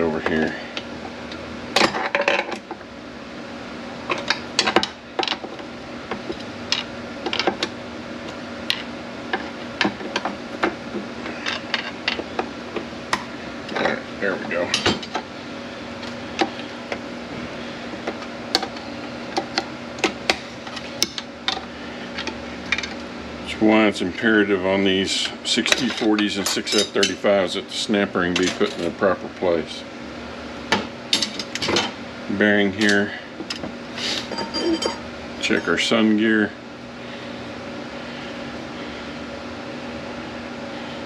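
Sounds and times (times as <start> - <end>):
metal parts and tools clinking: 34.3 - 35.8.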